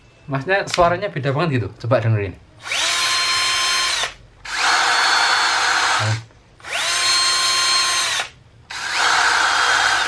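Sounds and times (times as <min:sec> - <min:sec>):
cordless drill whining: 0:02.6 - 0:10.0.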